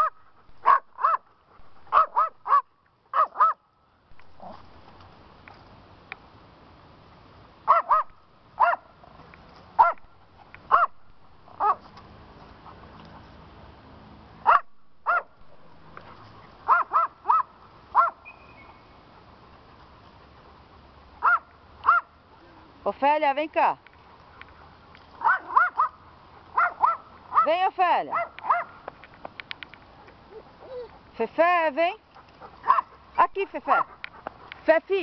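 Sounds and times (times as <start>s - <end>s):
dog barking: 0.0s - 1.2s, 1.9s - 3.6s, 7.7s - 8.9s, 9.8s - 10.0s, 10.7s - 11.0s, 11.6s - 11.8s, 14.5s - 15.3s, 16.7s - 18.2s, 21.2s - 22.1s, 25.2s - 26.0s, 26.6s - 28.8s, 32.6s - 33.0s, 33.7s - 34.0s.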